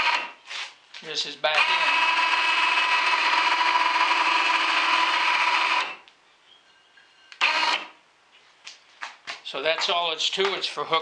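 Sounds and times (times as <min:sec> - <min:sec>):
electric winch motor running: 0:00.0 - 0:00.4, 0:01.4 - 0:06.1, 0:07.3 - 0:08.0.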